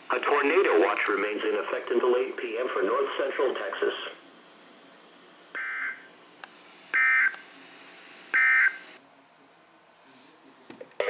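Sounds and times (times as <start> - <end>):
alert radio data bursts: 8.3 - 9.0.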